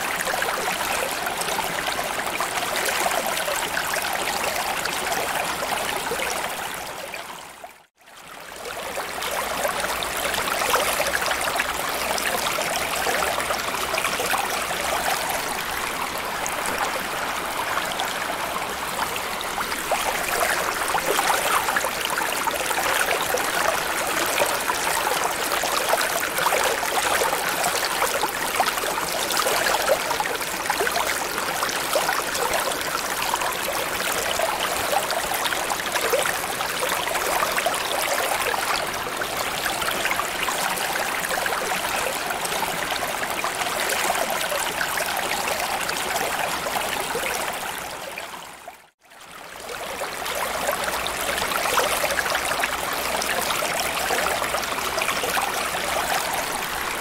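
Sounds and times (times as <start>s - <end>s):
running water: 8.5s - 48.7s.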